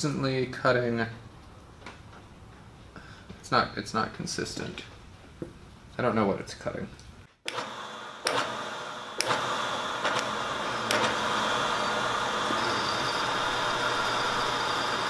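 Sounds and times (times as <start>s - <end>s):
milling machine boring steel: 7.5s - 15.0s.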